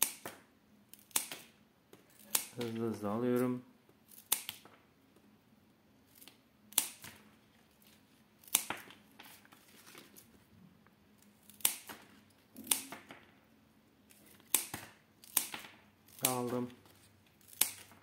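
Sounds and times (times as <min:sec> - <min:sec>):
scissors snipping stems: 0:00.0 - 0:01.5, 0:02.2 - 0:04.7, 0:11.4 - 0:12.0, 0:12.6 - 0:13.1, 0:14.1 - 0:16.8, 0:17.4 - 0:18.0.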